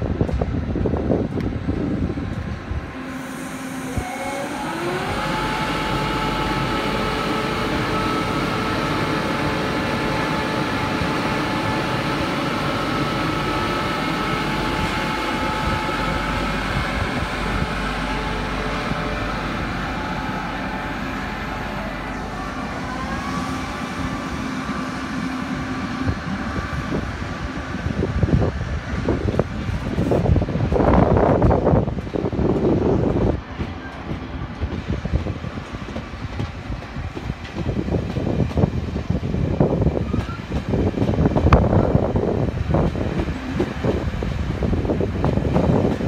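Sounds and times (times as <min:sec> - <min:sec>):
electric locomotive whine: 0:00.0 - 0:46.0
train wheels rumbling on rails: 0:00.0 - 0:46.0.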